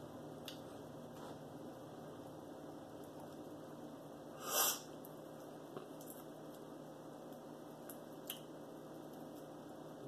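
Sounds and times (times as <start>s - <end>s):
sharp burst of breath: 4.4s - 4.9s.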